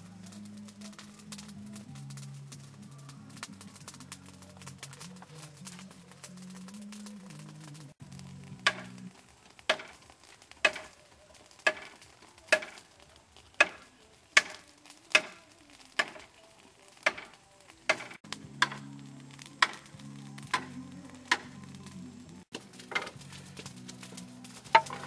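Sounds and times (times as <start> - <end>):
knife chopping bamboo: 8.7 - 8.9, 9.7 - 10.0, 10.6 - 10.9, 11.6 - 12.8, 17.9 - 18.8.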